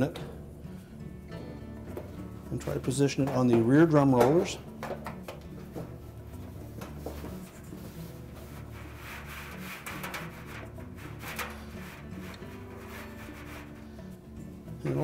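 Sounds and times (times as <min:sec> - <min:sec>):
metal drum scraping cabinet: 0:02.4 - 0:04.6, 0:05.6 - 0:14.2.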